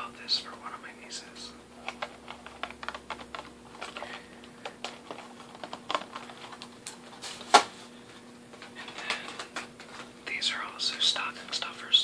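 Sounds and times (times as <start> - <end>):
fingers tapping plastic packaging: 1.8 - 7.0
plastic packaging crinkling: 1.8 - 7.7.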